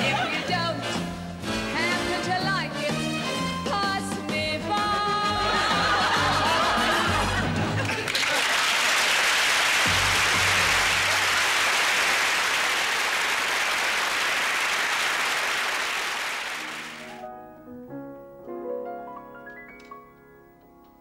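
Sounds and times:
audience applauding: 6.0 - 17.2
solo piano: 17.0 - 21.0.

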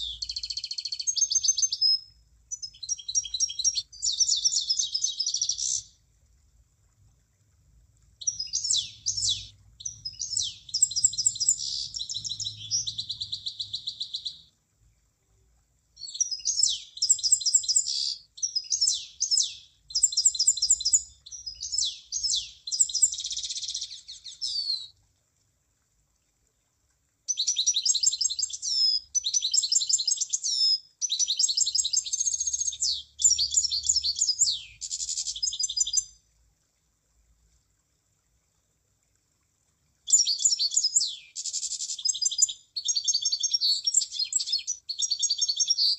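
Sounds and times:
bird chirping and trilling: 0.0 - 6.0, 8.2 - 14.5, 16.0 - 24.9, 27.3 - 36.2, 40.1 - 45.9.

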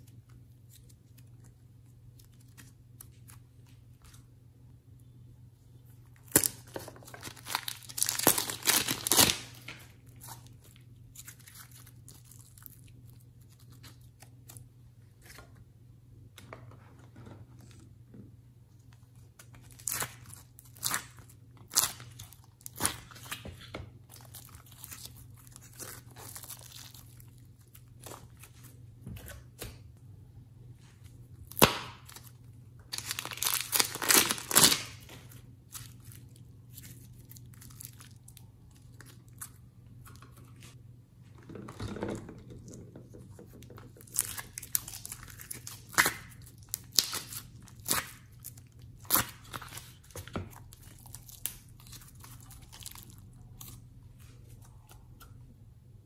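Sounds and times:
plastic packaging crinkling: 6.2 - 14.6, 19.5 - 28.7, 32.9 - 40.7, 44.0 - 53.8.

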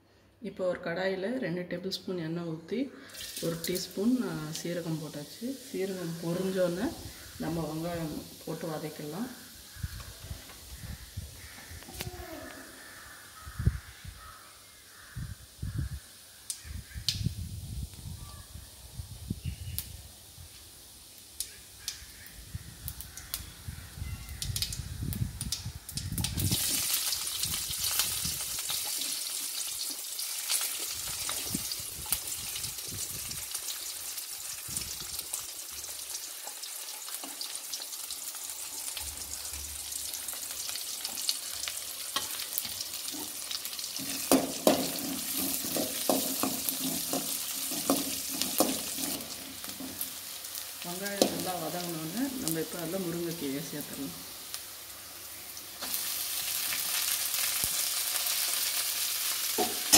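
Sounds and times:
onions sizzling in hot oil: 3.0 - 59.9
cumin seeds crackling: 3.1 - 13.5, 19.5 - 59.9
metal spatula scraping pan: 44.0 - 50.0.

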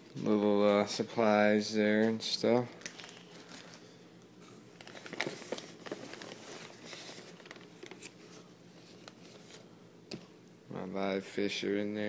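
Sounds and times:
plastic and paper rustling: 4.8 - 9.7.

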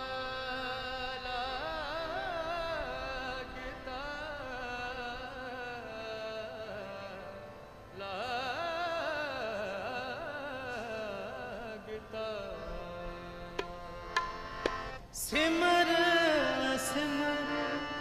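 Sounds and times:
harmonium chords: 0.0 - 18.0
tabla stroke: 13.5 - 15.0
person singing: 15.2 - 18.0.

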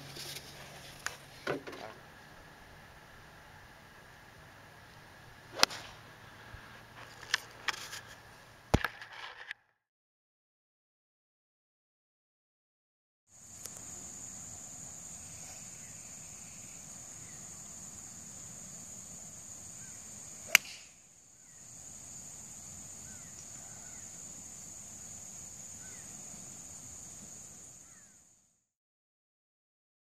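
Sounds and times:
high outdoor drone: 0.0 - 9.5, 13.3 - 27.9
golf club striking ball: 5.5 - 6.0, 20.5 - 20.9.

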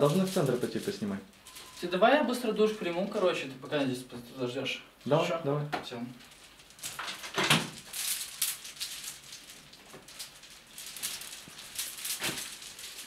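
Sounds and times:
bead curtain rattling: 0.0 - 2.0, 6.2 - 13.0.

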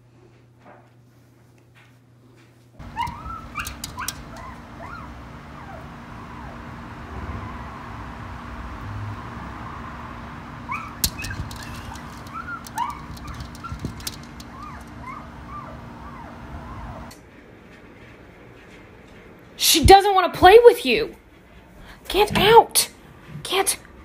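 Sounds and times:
claws scraping glass door: 2.8 - 4.9, 10.8 - 15.3
small dog whining: 2.8 - 6.6, 10.7 - 17.1.

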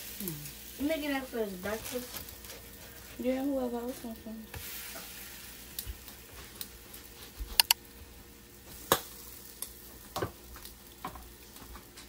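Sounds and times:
pancakes sizzling on a griddle: 0.0 - 12.0
spatula clicking on griddle: 7.6 - 7.8.

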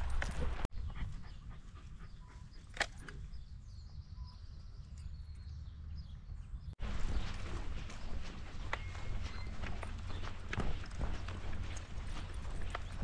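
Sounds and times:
dog panting: 0.2 - 2.7.

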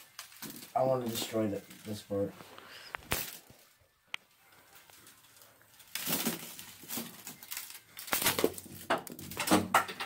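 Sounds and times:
loose plastic pieces rattling: 0.0 - 2.2, 4.8 - 10.0
plastic pieces crashing: 0.0 - 2.2, 3.0 - 3.8, 4.7 - 10.0.

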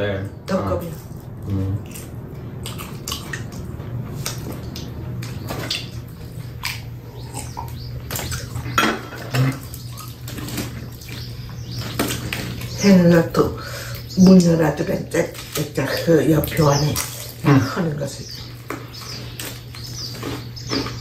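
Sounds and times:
low steady hum: 0.0 - 21.0
eating clicks and rustles: 0.8 - 21.0
dishes clinking: 8.7 - 9.7.

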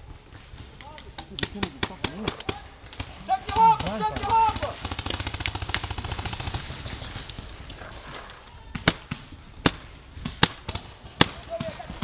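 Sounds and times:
paintball markers firing: 0.6 - 12.0.

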